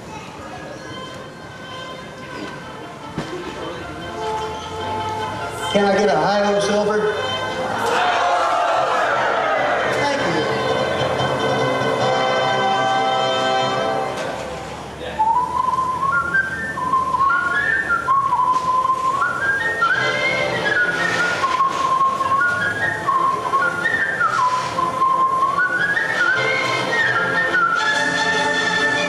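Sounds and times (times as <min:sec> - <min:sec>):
man whistling a tune: 0:15.0 - 0:29.0.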